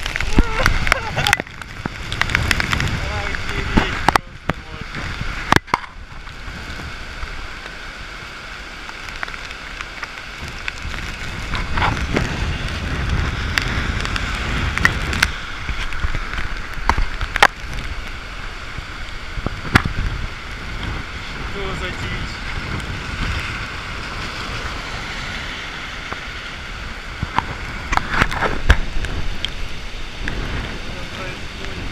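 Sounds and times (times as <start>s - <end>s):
raindrop taps: 0.0s - 7.8s, 8.8s - 18.2s, 19.0s - 21.1s, 27.1s - 29.6s
heavy rain downpour: 0.0s - 31.9s
wind gusts buffeting microphone: 0.0s - 31.9s.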